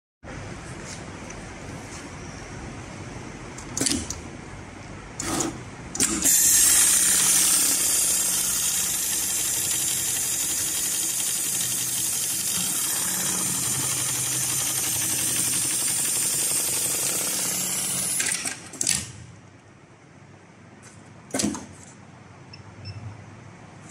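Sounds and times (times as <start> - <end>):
sewing machine clacks: 5.2 - 19.1
sewing machine stitching: 5.2 - 19.1.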